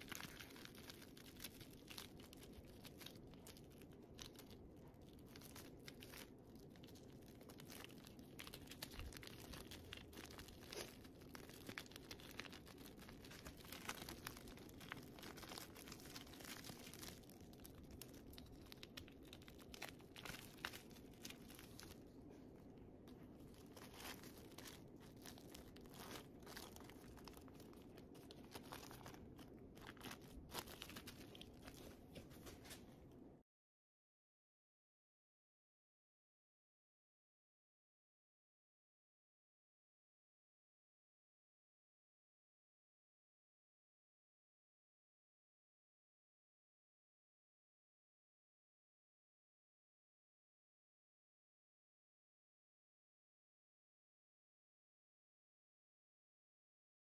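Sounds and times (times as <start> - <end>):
plastic balloon crinkling: 0.0 - 33.1.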